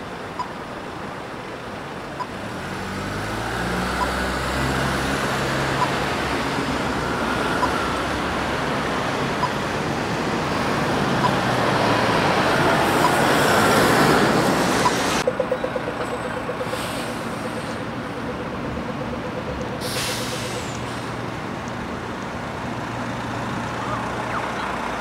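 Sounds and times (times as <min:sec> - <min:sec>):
bus engine running: 0:00.0 - 0:25.0
passing vehicles rushing: 0:01.9 - 0:25.0
air brake hisses: 0:16.7 - 0:17.8, 0:19.8 - 0:21.2.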